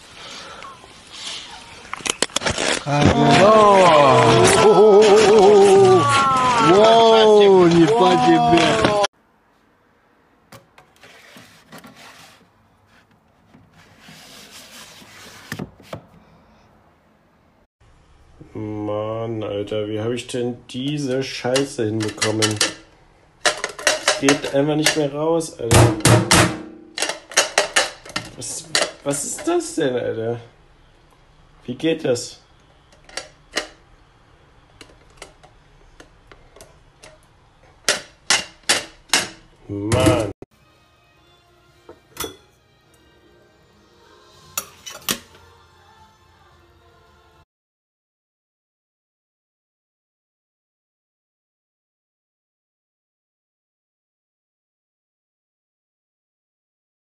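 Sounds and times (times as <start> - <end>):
plastic scraping on wood: 10.8 - 16.1.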